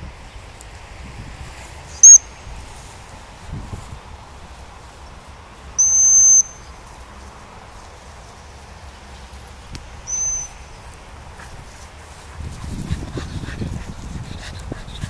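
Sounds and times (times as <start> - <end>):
high-pitched whistle blasts: 2.0 - 2.2, 5.8 - 6.7, 10.1 - 10.6.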